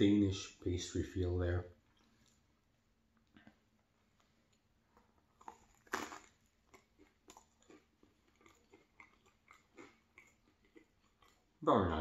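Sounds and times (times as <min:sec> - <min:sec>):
chewing with mouth clicks: 0:03.2 - 0:11.6
biting into bagel: 0:05.4 - 0:11.4.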